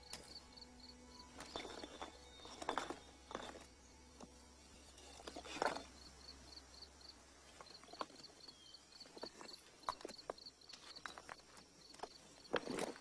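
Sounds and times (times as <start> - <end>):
crickets chirping: 0.0 - 13.0
stone scraping: 1.2 - 6.2.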